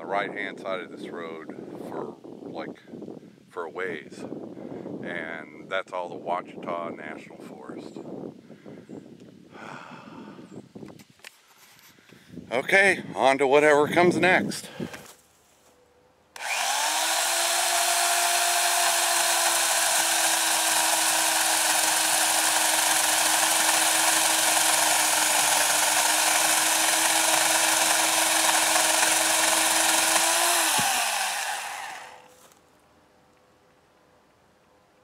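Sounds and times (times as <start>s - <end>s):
electric chainsaw cutting branch: 16.4s - 32.6s.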